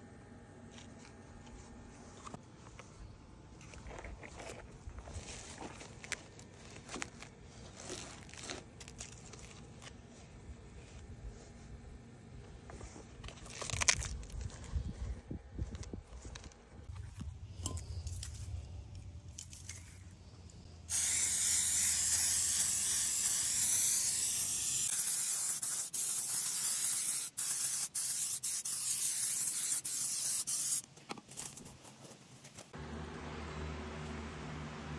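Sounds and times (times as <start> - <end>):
faint handling rustles: 0.7 - 20.7
aerosol spray can hissing: 20.9 - 30.8.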